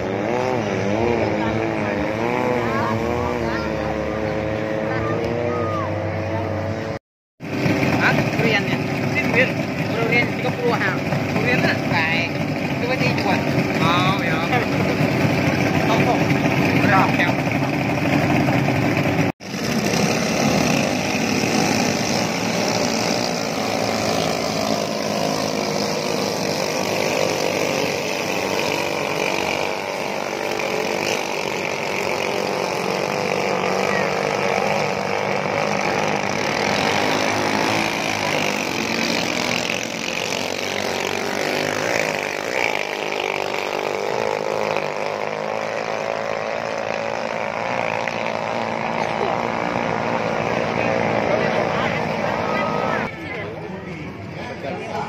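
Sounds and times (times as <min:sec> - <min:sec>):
voices: 0:00.0 - 0:07.0, 0:21.4 - 0:45.3, 0:48.8 - 0:55.0
outboard motors droning: 0:00.0 - 0:55.0.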